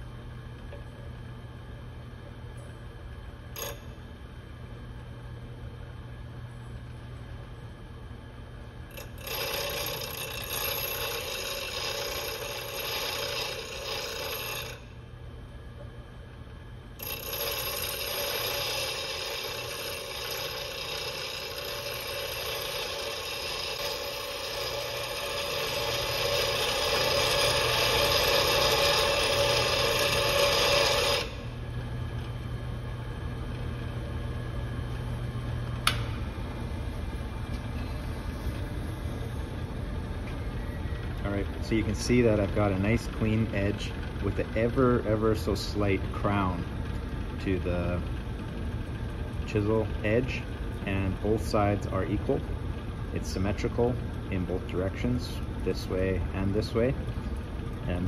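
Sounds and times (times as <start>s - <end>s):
bench grinder motor humming: 8.9s - 15.0s, 17.0s - 31.6s
chisel grinding hiss: 9.0s - 14.8s, 17.0s - 31.5s.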